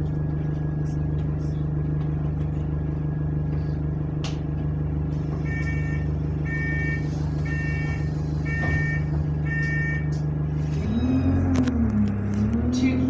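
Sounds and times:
bus diesel engine idling: 0.0 - 13.0
two-tone electronic warning beeper: 5.4 - 10.2.

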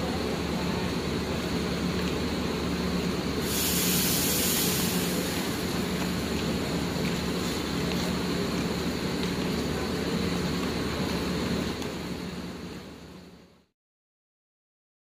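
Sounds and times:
bus idling hum: 0.0 - 13.7
pneumatic air hiss: 3.4 - 5.6.

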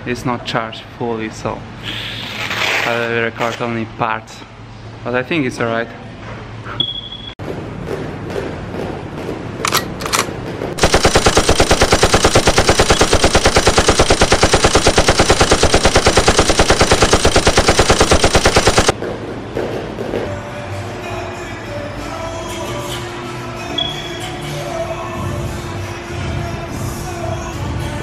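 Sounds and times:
rapid sharp bangs: 9.7 - 19.0.

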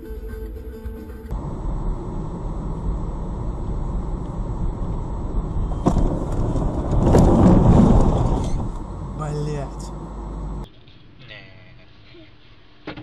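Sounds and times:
vehicle road noise rumble: 1.3 - 10.7.

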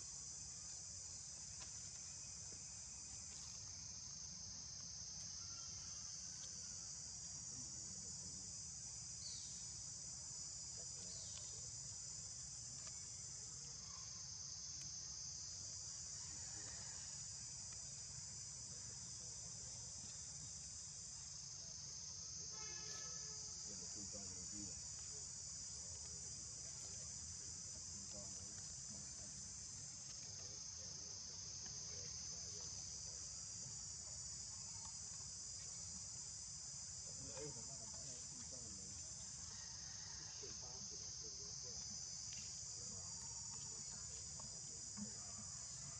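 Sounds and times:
insects chirring: 0.0 - 45.9.

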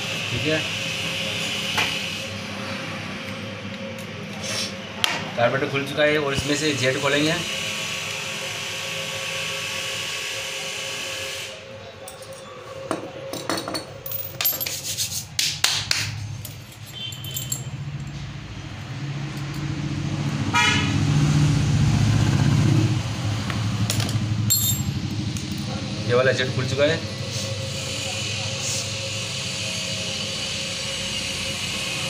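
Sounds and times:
metal hand tools clicking and scraping: 13.4 - 15.4.

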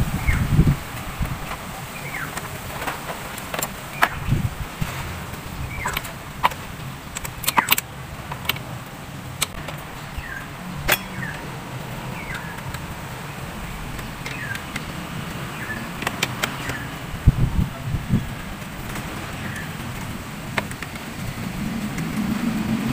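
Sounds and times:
tools clicking on car engine parts: 1.0 - 13.0, 13.6 - 17.2, 18.5 - 21.2
bird chirping: 1.8 - 2.6, 5.4 - 7.9, 9.5 - 18.4.

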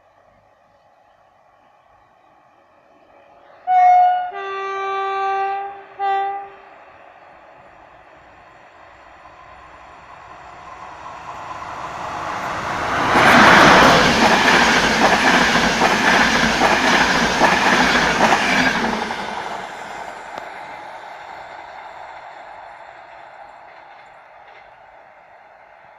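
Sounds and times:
train passing at speed: 0.0 - 25.9
train wheels clicking over rail joints: 12.5 - 20.6.

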